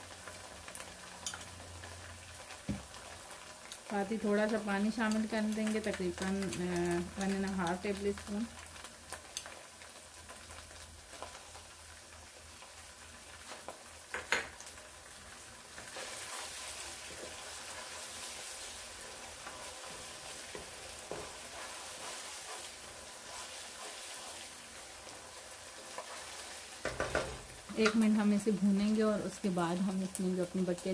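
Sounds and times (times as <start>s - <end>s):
onions sizzling in oil: 0.0s - 30.9s
wooden spatula stirring and scraping: 15.7s - 28.0s.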